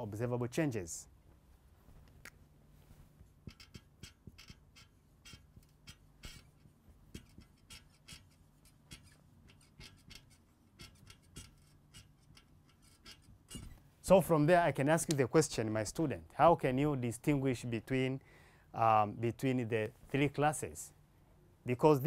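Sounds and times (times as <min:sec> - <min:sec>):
marker squeaking on whiteboard: 0:03.4 - 0:13.8.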